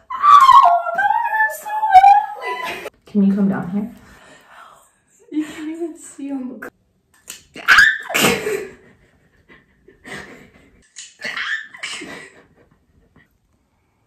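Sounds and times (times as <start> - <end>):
woman crying out: 0.0 - 2.9
woman laughing breathily: 8.1 - 10.8, 11.7 - 13.4.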